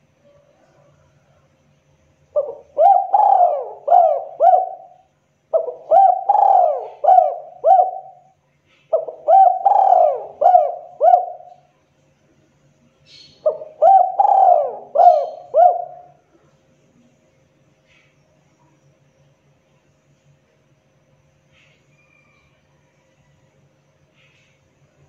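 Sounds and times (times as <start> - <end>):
dove cooing: 2.3 - 11.7, 13.4 - 16.2.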